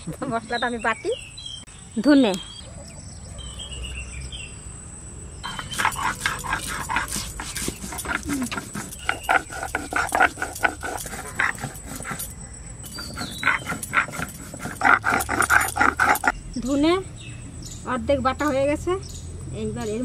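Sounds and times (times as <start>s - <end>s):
stone roller crushing seeds: 5.5s - 12.3s, 12.9s - 16.3s.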